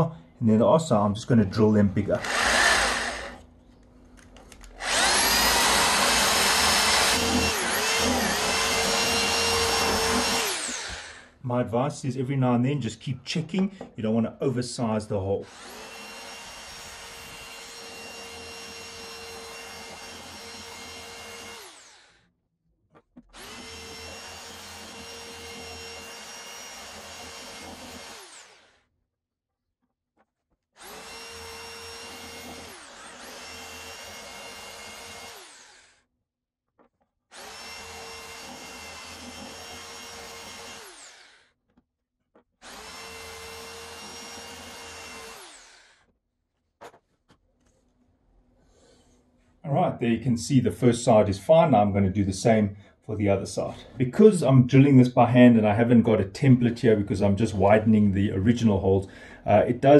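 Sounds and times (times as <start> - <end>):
electric drill boring wood: 2.2 - 3.5, 4.5 - 11.3, 15.4 - 22.3, 23.2 - 28.8, 30.8 - 36.0, 37.3 - 41.6, 42.6 - 46.1.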